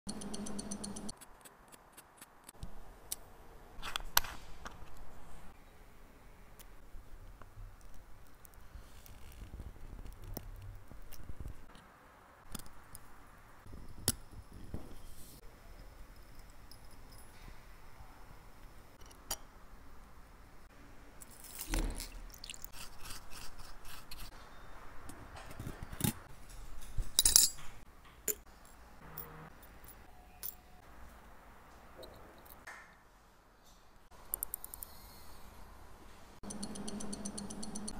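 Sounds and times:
watchmaker's tools clicking on metal: 0:00.1 - 0:02.3, 0:36.4 - 0:37.9.

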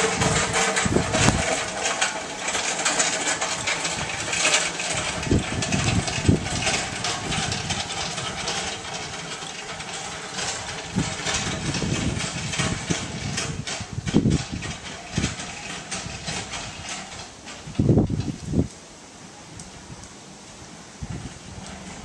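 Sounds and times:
trolleys rattling over paving: 0:00.0 - 0:22.0.

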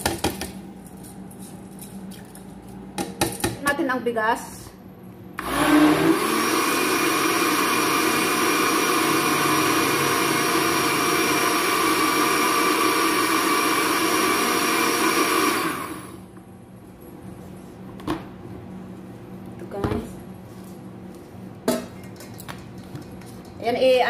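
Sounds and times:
blender motor grinding: 0:05.4 - 0:16.2.

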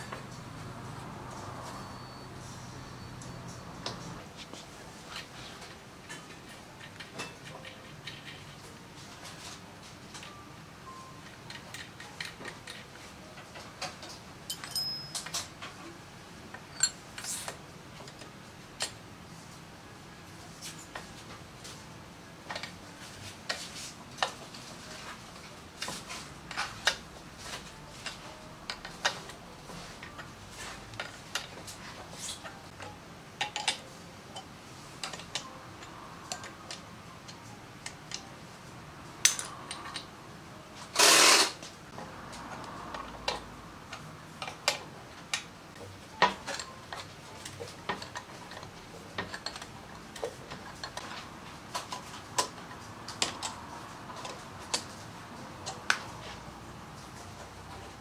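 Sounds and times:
hand tools clinking on metal: 0:14.5 - 0:15.5.

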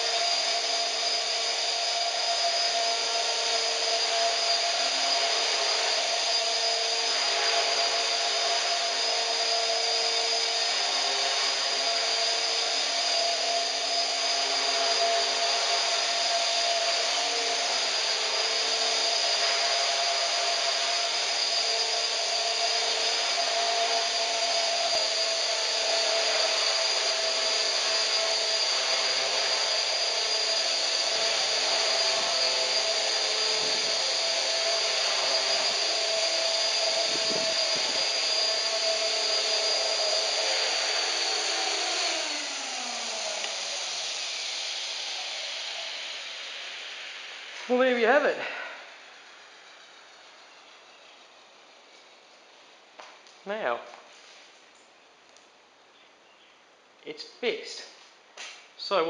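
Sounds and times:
helicopter rotor whirring: 0:00.0 - 0:50.6
electric motor whine: 0:00.0 - 0:52.2.

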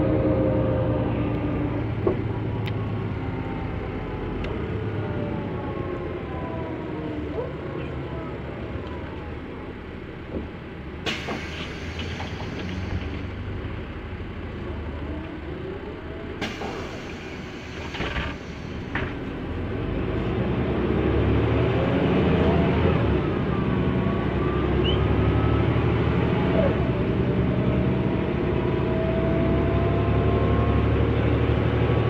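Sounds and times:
bus engine running: 0:00.0 - 0:32.0
sharp clicks and hisses: 0:11.1 - 0:13.3.

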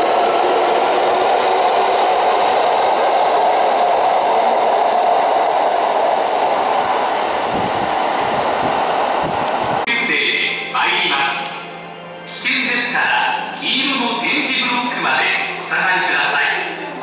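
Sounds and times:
electric train running: 0:00.0 - 0:09.9.

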